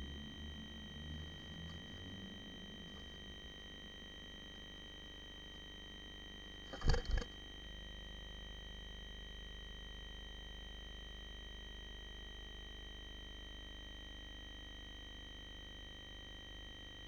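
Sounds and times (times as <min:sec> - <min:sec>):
steady electronic hum: 0:00.0 - 0:10.9.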